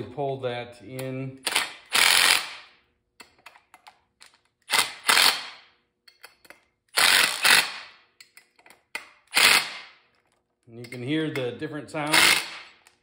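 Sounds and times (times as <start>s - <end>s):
cordless drill driving bolts: 1.4s - 2.7s, 4.7s - 5.6s, 6.9s - 7.9s, 9.3s - 9.8s, 12.1s - 13.0s
drill ratcheting clatter: 1.4s - 2.7s, 4.2s - 5.7s, 6.3s - 10.4s, 12.0s - 13.0s.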